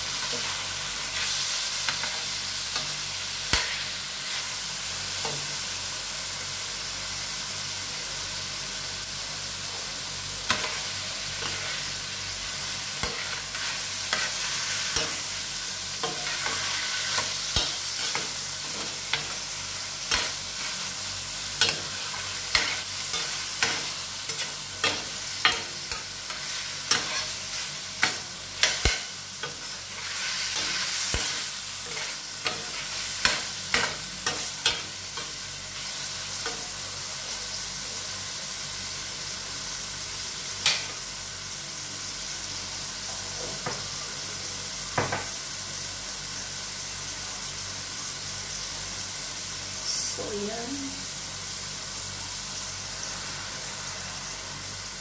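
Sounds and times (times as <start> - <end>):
food sizzling in a frying pan: 0.0 - 55.0
metal spatula scraping a pan: 21.6 - 35.4.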